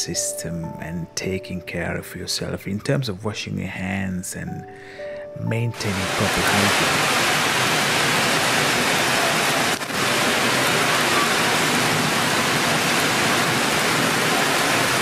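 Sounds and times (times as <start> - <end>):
heavy rain hissing: 5.7 - 15.0.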